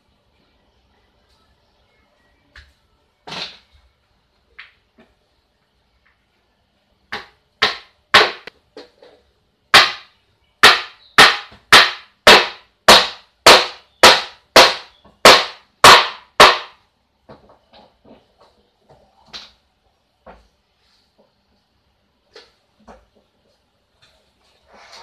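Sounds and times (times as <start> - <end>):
hammer striking wood: 7.1 - 8.5, 9.7 - 16.8.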